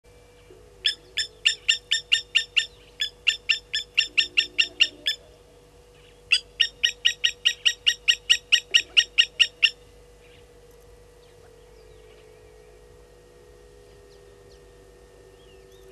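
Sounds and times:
bird metallic alarm call: 0:00.8 - 0:05.4, 0:06.0 - 0:10.5.

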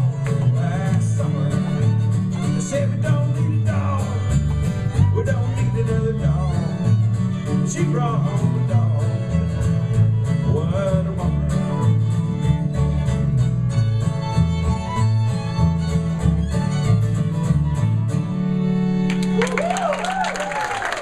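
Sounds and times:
stepping bass line: 0:00.0 - 0:18.4
strummed acoustic guitars: 0:00.0 - 0:19.4
fiddle melody: 0:00.0 - 0:19.6.

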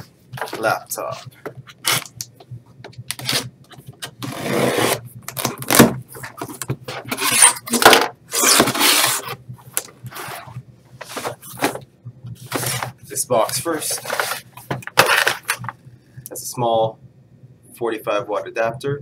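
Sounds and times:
cardboard rubbing and scraping: 0:04.2 - 0:09.4, 0:10.1 - 0:11.8, 0:12.4 - 0:13.0, 0:13.6 - 0:15.5
knife cutting packing tape: 0:08.3 - 0:09.3.

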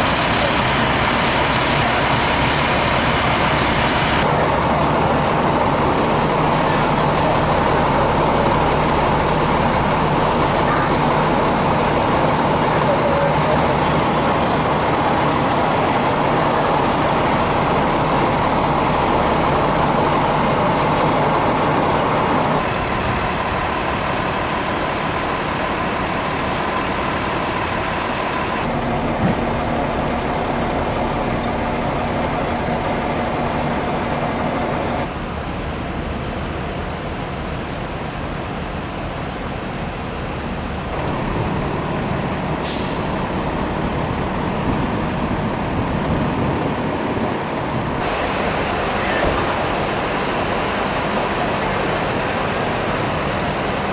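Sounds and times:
diesel engines running: 0:00.0 - 0:53.9
short hiss: 0:42.6 - 0:43.2.

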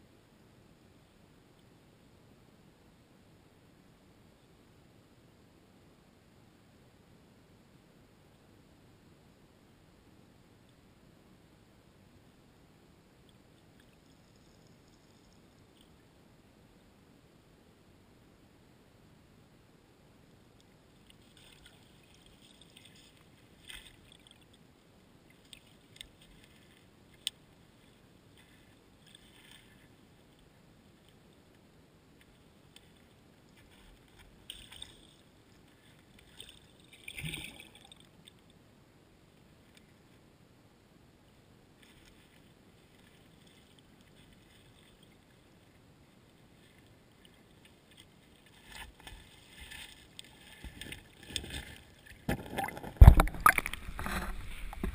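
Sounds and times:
faint river water underwater: 0:00.0 - 0:54.9
crackle: 0:13.2 - 0:16.2, 0:20.3 - 0:38.6, 0:41.7 - 0:54.9.

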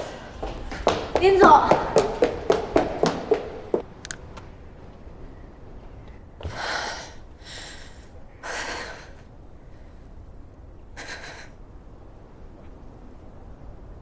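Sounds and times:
woman breathing deeply: 0:06.4 - 0:10.2, 0:11.0 - 0:11.6.

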